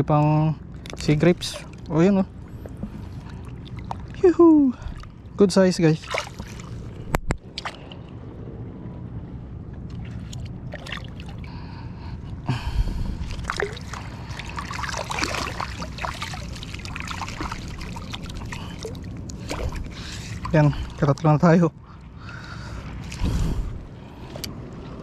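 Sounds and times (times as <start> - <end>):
seawater sloshing and trickling: 0.6 - 8.2, 9.4 - 25.0
small water splashes: 0.7 - 8.0, 9.9 - 11.6, 13.1 - 23.6.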